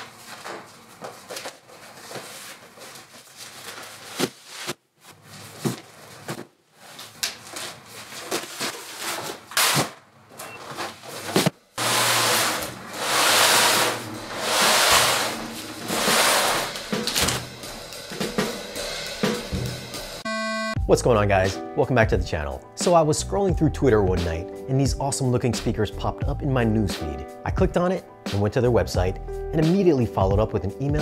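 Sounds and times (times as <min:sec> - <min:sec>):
rushing noise: 0:11.8 - 0:17.3.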